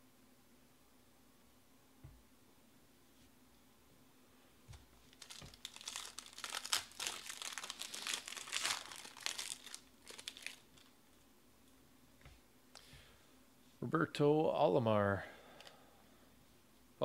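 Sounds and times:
foil wrapper crinkling: 5.1 - 11.0.

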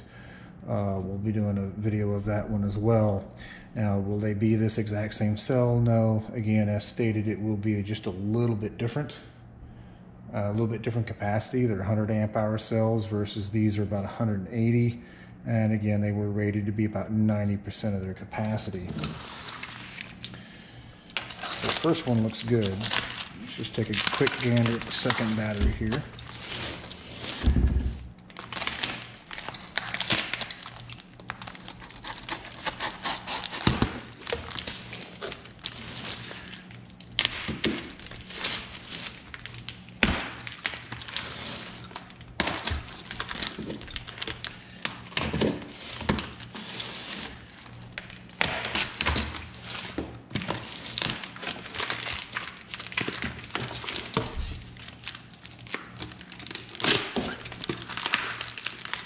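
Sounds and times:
cardboard and plastic tearing: 18.4 - 20.3, 21.1 - 59.0
box cutter slitting cardboard: 32.1 - 34.1.

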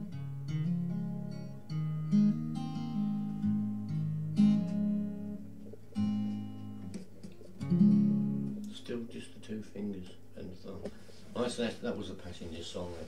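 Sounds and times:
fingerpicked acoustic guitar: 0.0 - 12.0.

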